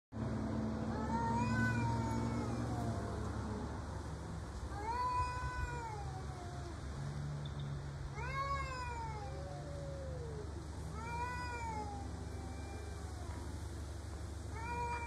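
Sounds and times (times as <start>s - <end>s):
cat yowling: 0.9s - 3.2s, 4.7s - 6.8s, 8.1s - 13.6s, 14.5s - 15.0s.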